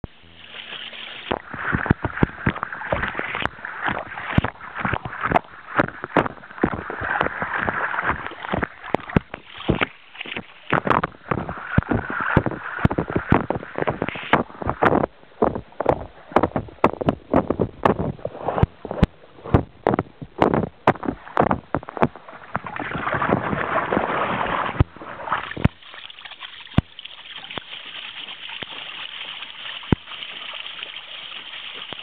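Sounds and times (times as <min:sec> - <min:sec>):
churning water: 0:00.0 - 0:32.0
dog paws slapping water: 0:00.2 - 0:15.1, 0:15.8 - 0:32.0.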